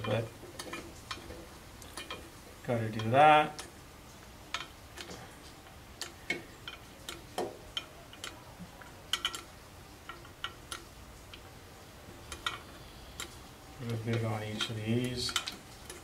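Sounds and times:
oil can trigger clicking: 12.3 - 16.0.

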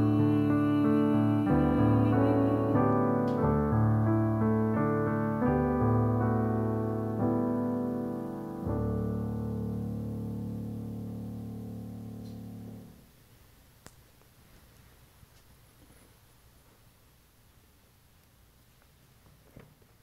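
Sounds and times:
slow piano music: 0.0 - 13.1.

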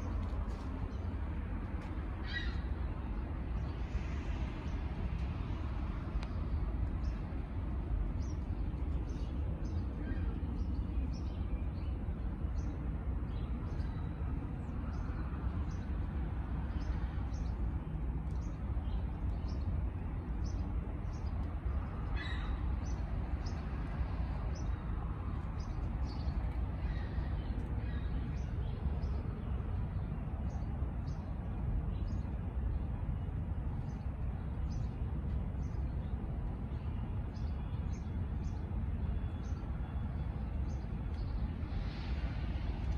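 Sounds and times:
small birds chirping: 6.2 - 42.1.

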